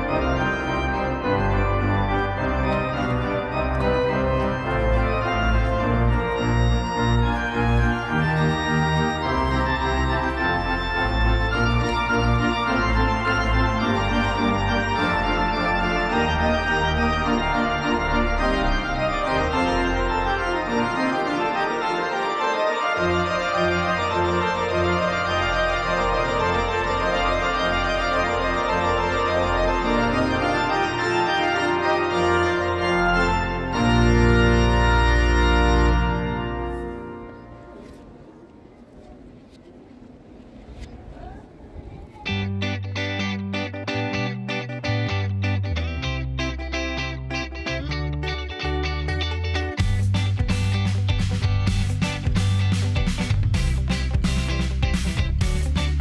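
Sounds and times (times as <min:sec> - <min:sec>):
organ playing held chords: 0:00.0 - 0:39.4.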